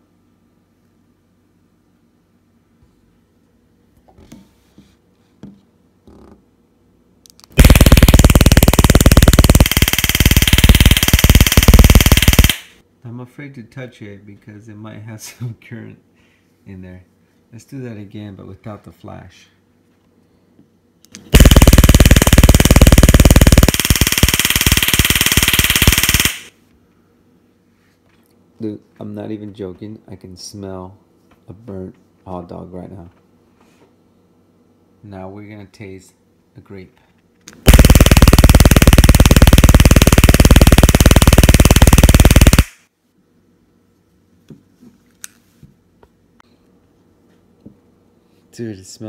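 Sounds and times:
stun gun crackling: 0:07.4 - 0:12.8, 0:21.2 - 0:26.5, 0:37.6 - 0:42.8.

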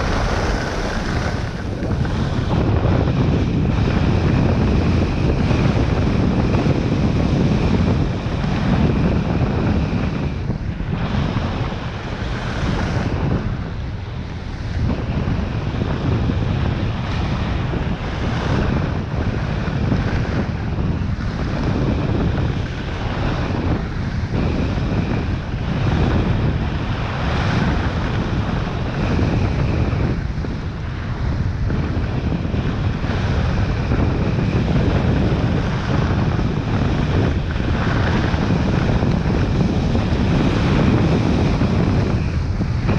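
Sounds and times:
skis scraping over snow: 0:00.0 - 0:13.6, 0:17.9 - 0:42.9
wind rushing over microphone: 0:00.0 - 0:42.9.

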